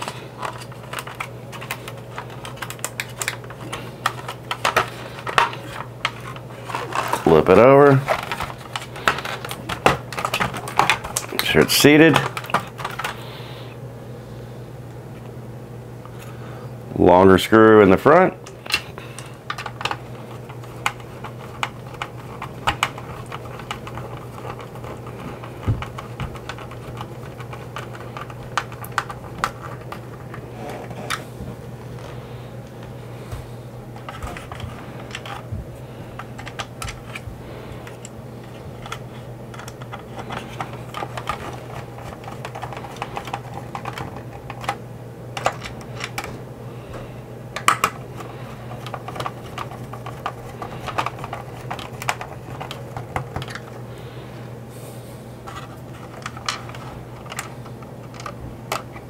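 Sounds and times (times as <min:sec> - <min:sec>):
plastic parts clicking and tapping: 0:00.0 - 0:13.2, 0:18.4 - 0:30.4, 0:34.0 - 0:35.5, 0:36.1 - 0:37.2, 0:37.8 - 0:44.8, 0:45.4 - 0:46.4, 0:47.6 - 0:53.8, 0:55.5 - 0:59.0
steady low hum: 0:00.0 - 0:59.0.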